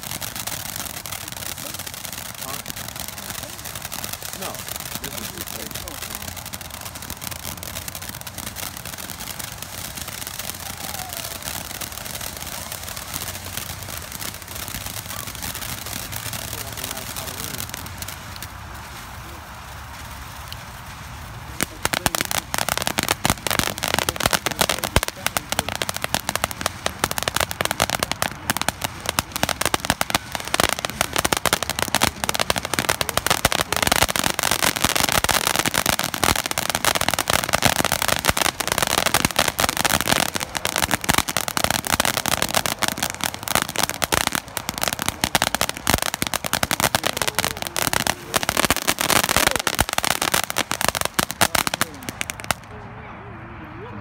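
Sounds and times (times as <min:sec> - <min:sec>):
firework fountain hissing and crackling: 0:00.0 - 0:52.8.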